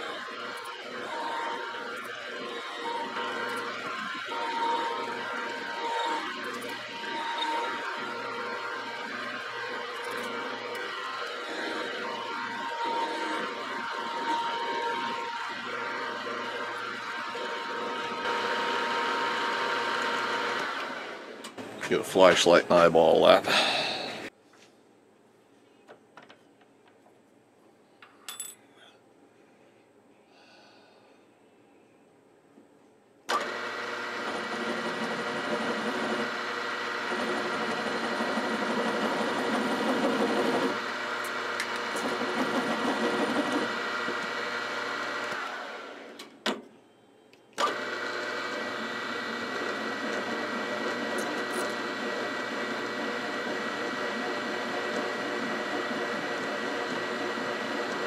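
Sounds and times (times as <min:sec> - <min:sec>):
milling machine spindle humming: 0:00.0 - 0:24.3, 0:33.3 - 0:46.2, 0:47.6 - 0:58.0.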